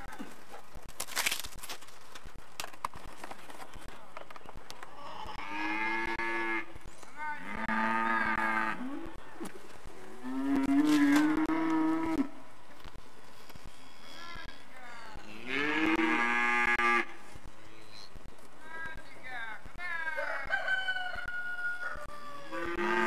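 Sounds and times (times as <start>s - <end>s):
cattle mooing: 5.2s - 6.7s, 7.4s - 9.2s, 10.2s - 12.3s, 13.9s - 17.1s, 22.4s - 23.0s.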